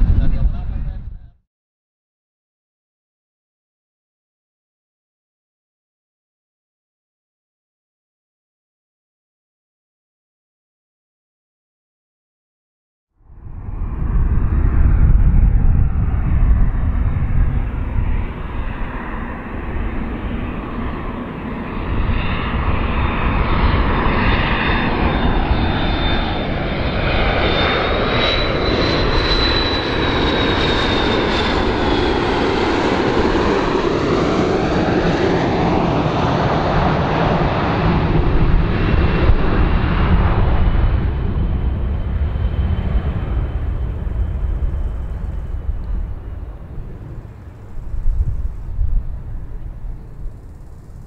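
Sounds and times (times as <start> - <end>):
airliner jet roar: 0.0 - 1.4, 13.2 - 51.0
high engine whine: 13.3 - 51.0.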